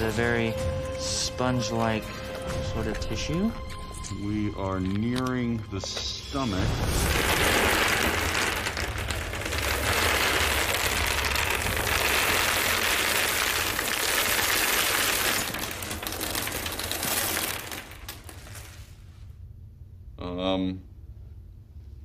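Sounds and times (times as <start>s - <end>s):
crackling and rustling: 0.0s - 19.3s
steady low hum: 17.8s - 22.0s.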